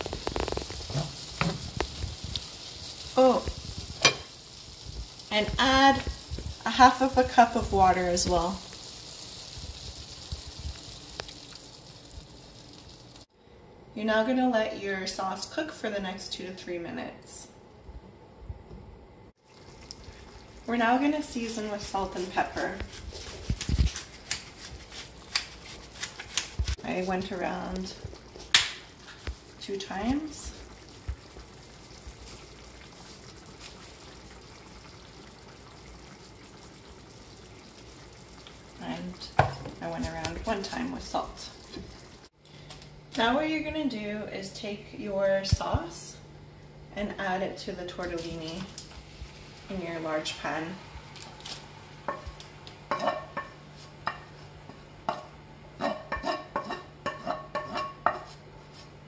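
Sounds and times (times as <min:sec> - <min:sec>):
sauce simmering in a frying pan: 0:00.0 - 0:13.4, 0:19.4 - 0:24.8, 0:26.7 - 0:42.4, 0:46.3 - 0:58.6
wooden spoon knocking frying pan: 0:39.4 - 0:40.3, 0:55.1 - 0:58.3.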